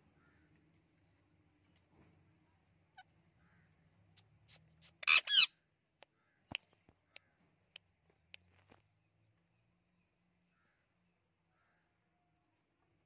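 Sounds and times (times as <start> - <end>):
parakeet chirping: 4.5 - 5.5
parakeet squawking: 4.5 - 5.5.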